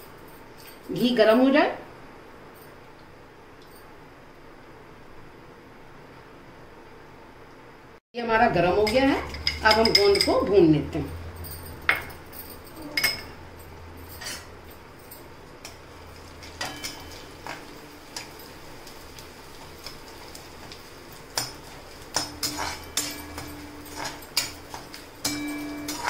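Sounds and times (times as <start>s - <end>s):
low hum: 8.3s - 18.2s
metal spoon scraping steel pan: 14.2s - 14.5s, 22.1s - 26.0s.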